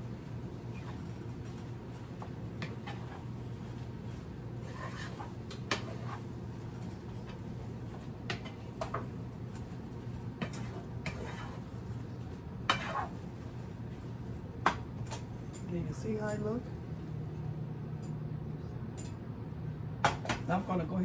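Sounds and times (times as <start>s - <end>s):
steady low hum: 0.0s - 21.0s
wooden spatula scraping skillet: 0.7s - 14.1s.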